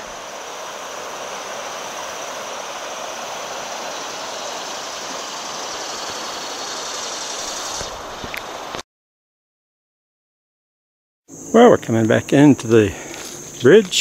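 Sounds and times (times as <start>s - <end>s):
river rushing over rapids: 0.0s - 8.8s.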